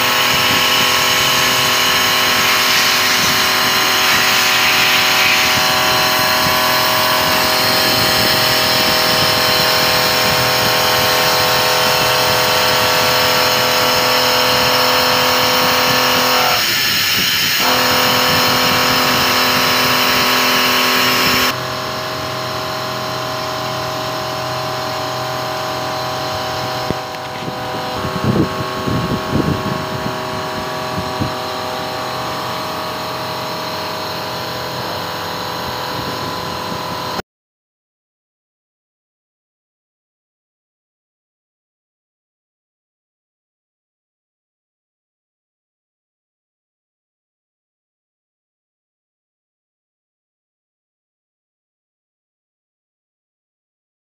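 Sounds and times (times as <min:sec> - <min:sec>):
milling machine whine: 0:00.0 - 0:37.2.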